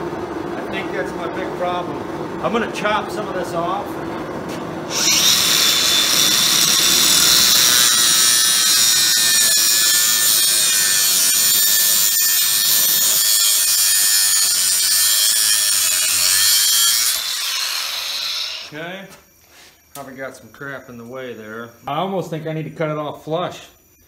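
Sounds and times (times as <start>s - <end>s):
angle grinder cutting metal: 4.9s - 18.7s.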